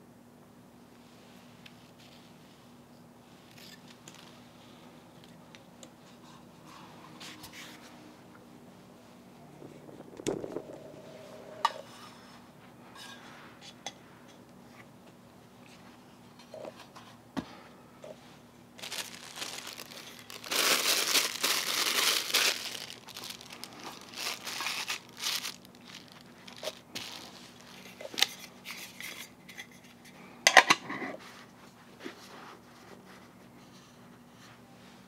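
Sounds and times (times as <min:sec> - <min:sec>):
plastic packaging crinkling: 0:09.6 - 0:11.7, 0:18.8 - 0:29.0.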